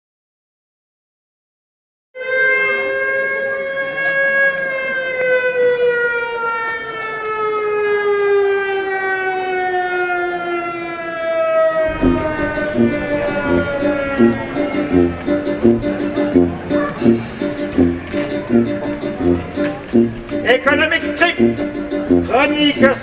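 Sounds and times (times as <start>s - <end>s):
siren wailing: 2.2s - 18.7s
strummed guitar music: 11.9s - 23.0s.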